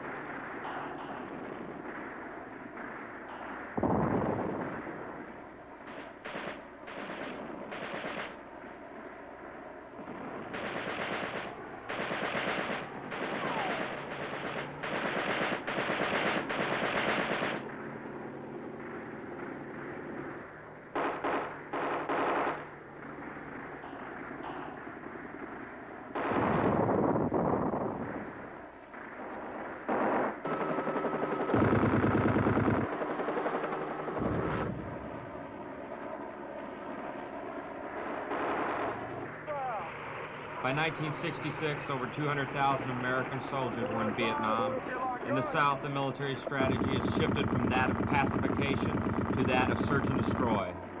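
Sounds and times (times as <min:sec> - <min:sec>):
engine whine: 0:00.0 - 0:51.0
explosion rumble: 0:03.4 - 0:05.4
automatic weapon fire bursts: 0:05.8 - 0:08.4, 0:10.0 - 0:17.9, 0:20.9 - 0:26.9, 0:28.9 - 0:34.7, 0:38.0 - 0:39.2, 0:45.5 - 0:50.9.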